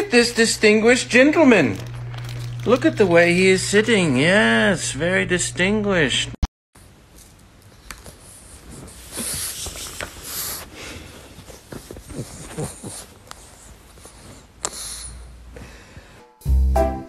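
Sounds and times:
dog snorting and snuffling: 0:08.0 - 0:15.4.

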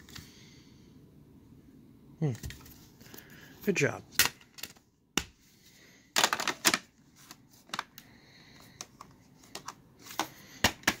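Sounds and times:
hard plastic parts clicking and clattering: 0:06.1 - 0:11.0.

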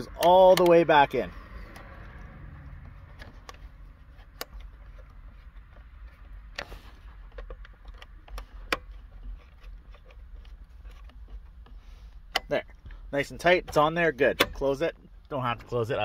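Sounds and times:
screwdriver clicks and taps: 0:00.1 - 0:00.7.

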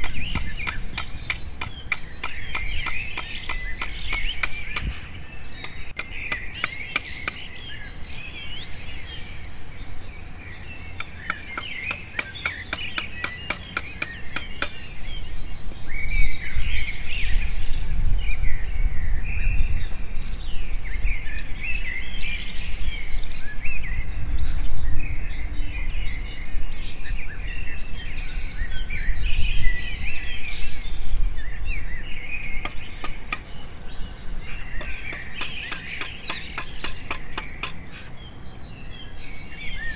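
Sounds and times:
hammer tapping steel rods: 0:00.0 - 0:04.9, 0:05.6 - 0:07.5, 0:11.0 - 0:14.8, 0:32.6 - 0:33.5, 0:34.8 - 0:37.8
birds chirping: 0:00.0 - 0:39.9.

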